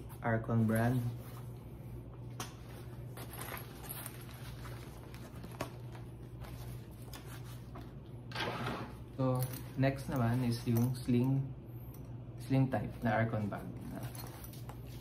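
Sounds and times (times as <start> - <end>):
steady low hum: 0.0 - 15.0
nylon bag rustling and clicking: 3.1 - 6.7.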